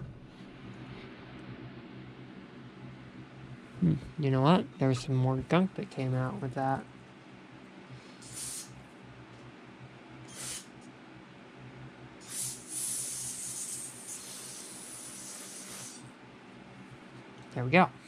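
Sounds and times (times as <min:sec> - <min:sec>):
aerosol spray can hissing: 0:08.2 - 0:08.8, 0:10.3 - 0:10.7, 0:12.2 - 0:16.0.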